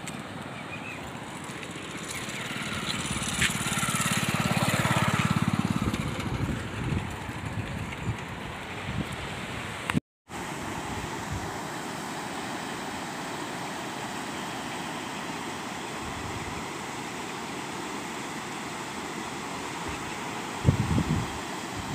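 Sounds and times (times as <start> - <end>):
water rushing through weir: 0.0 - 21.9.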